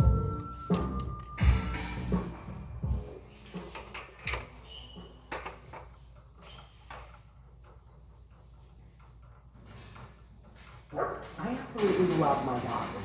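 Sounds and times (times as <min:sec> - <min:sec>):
metal parts clicking and knocking: 0:03.6 - 0:04.7, 0:05.3 - 0:13.0.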